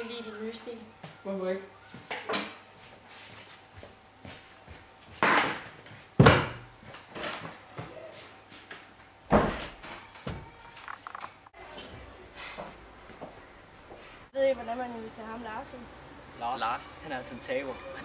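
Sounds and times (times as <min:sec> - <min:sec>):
chairs and desk knocking: 0:05.2 - 0:07.4, 0:09.3 - 0:10.5.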